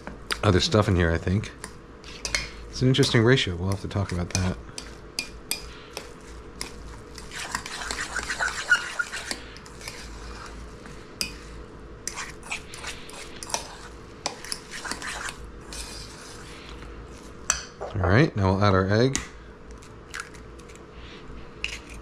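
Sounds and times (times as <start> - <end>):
fork scraping metal bowl: 5.5 - 10.5, 12.1 - 16.5.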